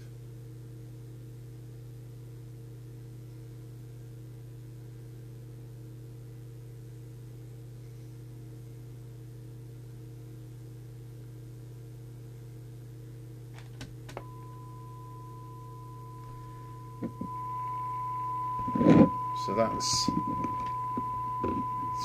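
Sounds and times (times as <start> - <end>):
low hum: 14.2 - 22.0
steady test tone from radio speaker: 14.2 - 22.0.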